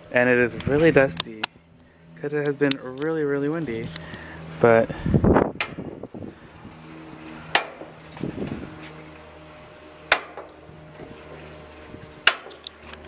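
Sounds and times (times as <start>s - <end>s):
grill igniter clicks: 12.2s - 13.0s.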